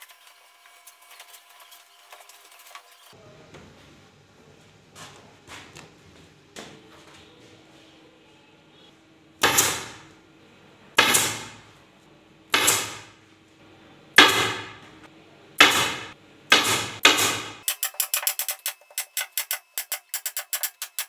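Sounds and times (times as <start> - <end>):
pneumatic staple gun shots: 9.4 - 10.0, 11.0 - 11.6, 12.5 - 13.1, 14.2 - 14.7, 15.6 - 18.5.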